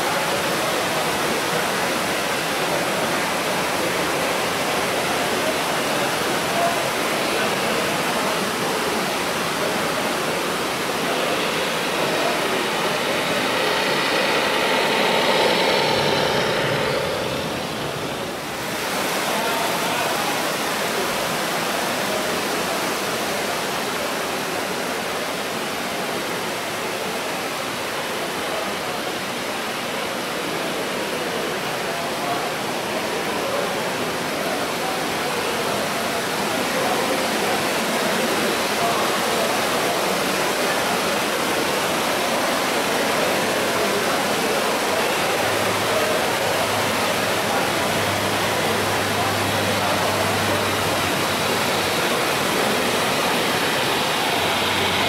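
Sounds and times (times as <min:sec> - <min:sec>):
steady rushing noise: 0:00.0 - 0:21.2, 0:40.6 - 0:55.0
murmur of voices: 0:00.0 - 0:55.0
faint steady tones: 0:09.3 - 0:18.9.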